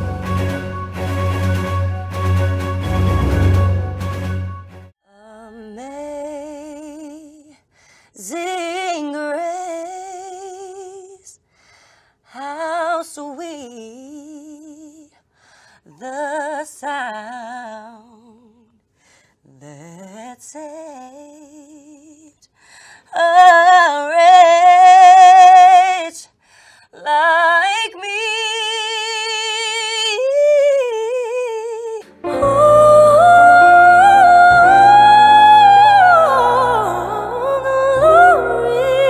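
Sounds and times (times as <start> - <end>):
instrumental music: 0.0 - 4.9, 32.0 - 39.0
woman singing unaccompanied: 5.1 - 7.6, 8.2 - 11.4, 12.3 - 15.2, 15.9 - 18.7, 19.6 - 22.4, 23.1 - 26.3, 27.0 - 39.0.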